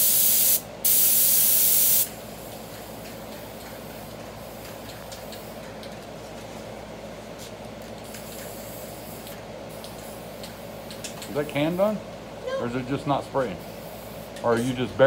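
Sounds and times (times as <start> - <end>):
spray paint can hissing: 0.0 - 2.2, 8.0 - 11.0
low background hum: 0.0 - 15.0.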